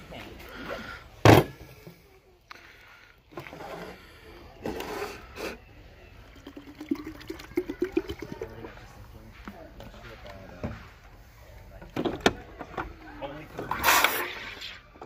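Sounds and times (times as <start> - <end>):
bottles knocking and clicking: 6.2 - 8.7.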